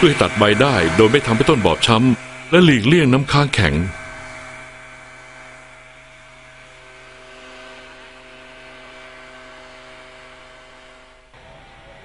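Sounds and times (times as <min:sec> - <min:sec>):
steady hum of held tones: 0:00.0 - 0:12.0.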